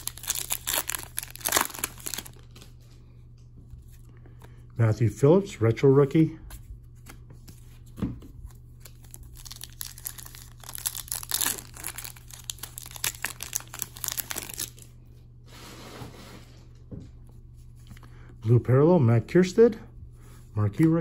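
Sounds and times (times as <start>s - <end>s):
foil wrapper crinkling and tearing: 0.0s - 2.6s, 8.8s - 14.9s.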